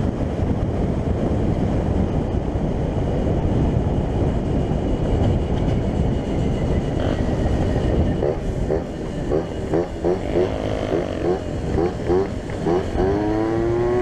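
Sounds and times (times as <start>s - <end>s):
wind on microphone: 0.0s - 14.0s
moped engine running: 5.0s - 14.0s.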